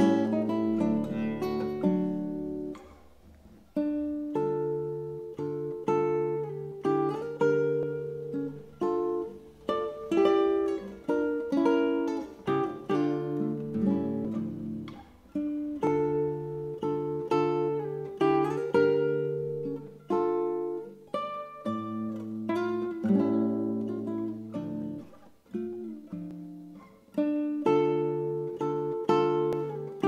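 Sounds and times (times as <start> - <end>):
classical guitar fingerstyle: 0.0 - 30.0.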